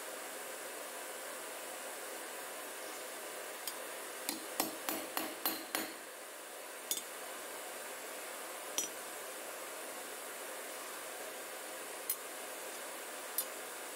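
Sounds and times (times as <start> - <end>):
hammer striking steel rod: 4.3 - 6.0.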